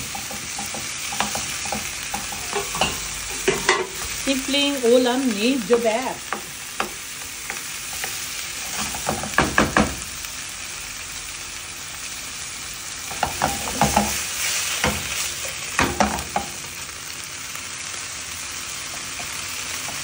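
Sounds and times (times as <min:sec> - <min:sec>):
wooden spoon knocking on pan: 0:00.0 - 0:04.1, 0:06.3 - 0:08.2, 0:08.8 - 0:10.1, 0:13.1 - 0:14.2, 0:15.8 - 0:16.6
oil sizzling in pans: 0:00.0 - 0:20.0.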